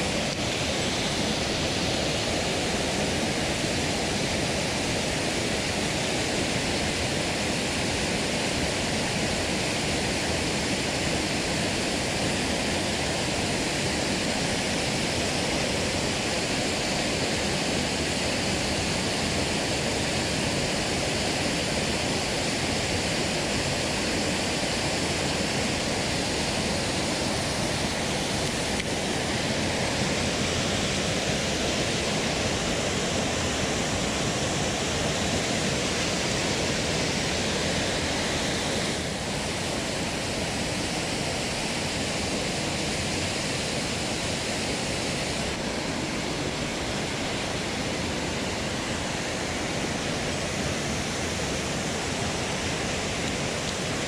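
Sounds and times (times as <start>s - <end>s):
water rushing over rocks: 0.0s - 54.0s.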